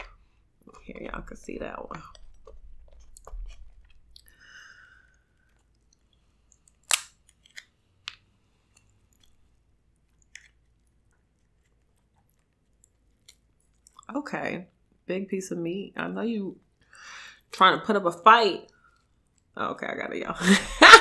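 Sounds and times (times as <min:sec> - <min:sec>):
close-up chewing: 0:02.1 - 0:07.7
crab shell cracking and snapping: 0:05.4 - 0:09.4, 0:10.1 - 0:14.1.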